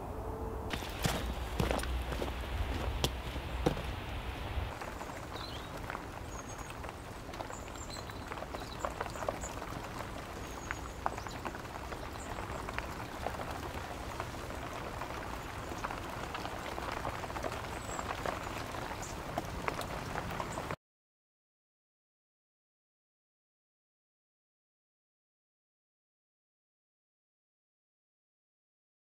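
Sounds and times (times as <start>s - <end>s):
soft woodland hiss: 0.7s - 9.6s
small birds chirping: 0.7s - 13.9s, 14.7s - 20.8s
drops pattering: 0.7s - 20.7s.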